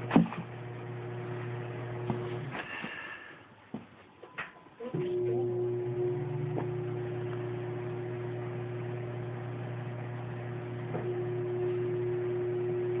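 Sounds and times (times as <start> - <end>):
steady low hum: 5.0 - 13.0.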